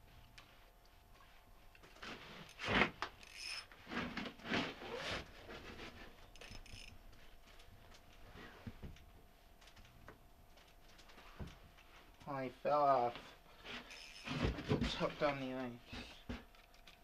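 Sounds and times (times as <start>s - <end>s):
fishing gear rubbing and scraping: 1.8s - 6.9s, 13.6s - 15.4s.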